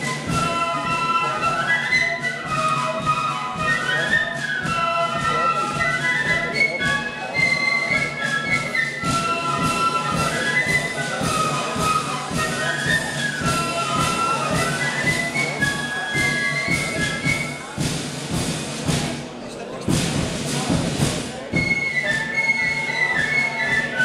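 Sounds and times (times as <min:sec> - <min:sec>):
flutes playing melody: 0:00.0 - 0:19.2, 0:19.9 - 0:24.0
regular drum beats: 0:00.0 - 0:24.0.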